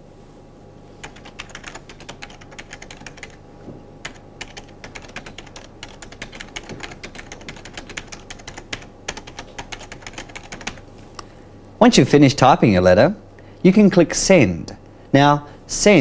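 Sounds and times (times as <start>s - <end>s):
faint steady hum: 0.0s - 16.0s
computer keyboard typing: 1.0s - 3.4s, 4.0s - 10.8s.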